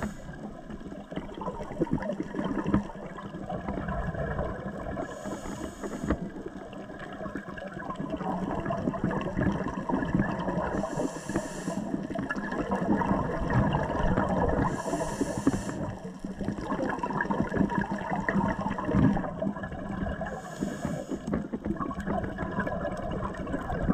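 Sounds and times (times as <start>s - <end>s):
regulator breathing hiss: 0.0s - 0.5s, 5.0s - 6.2s, 10.7s - 12.0s, 14.6s - 16.0s, 20.3s - 21.3s
bubbles gurgling underwater: 0.0s - 23.9s.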